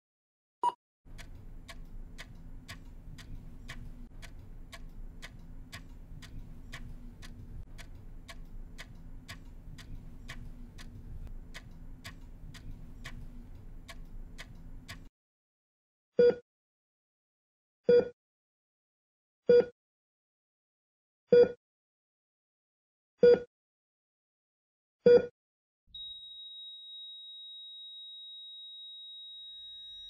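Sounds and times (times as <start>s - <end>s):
clock ticking: 1.1s - 15.1s
low hum: 1.1s - 15.1s.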